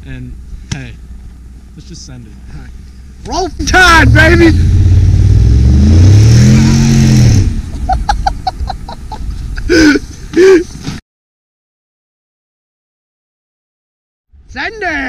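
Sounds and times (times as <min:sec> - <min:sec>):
vehicle engine revving: 0:02.6 - 0:08.8.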